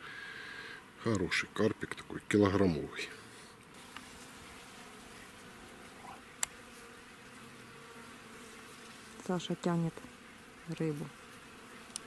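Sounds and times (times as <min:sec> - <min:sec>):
flying insect buzzing: 0:03.0 - 0:12.0.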